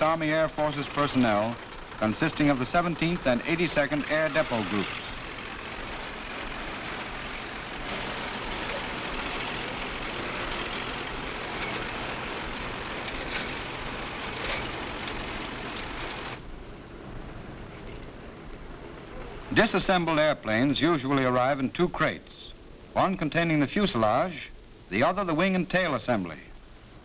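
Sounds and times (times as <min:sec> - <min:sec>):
heavy truck engine running: 0:00.0 - 0:20.2
film soundtrack hiss: 0:00.0 - 0:27.0.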